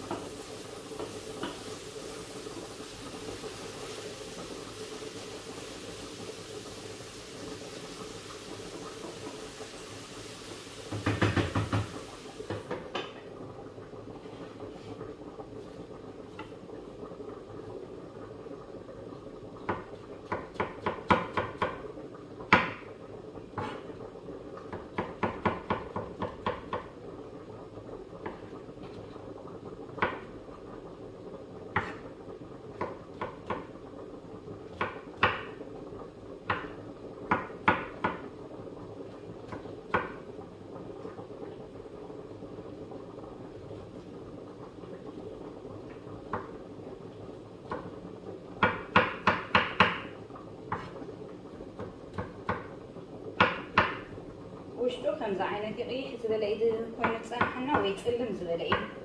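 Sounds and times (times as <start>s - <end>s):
knife chopping on wooden board: 48.6s - 50.1s, 53.4s - 54.0s.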